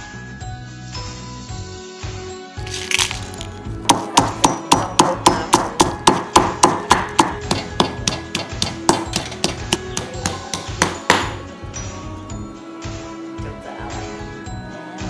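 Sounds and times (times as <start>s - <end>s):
pestle pounding in stone mortar: 2.7s - 11.4s.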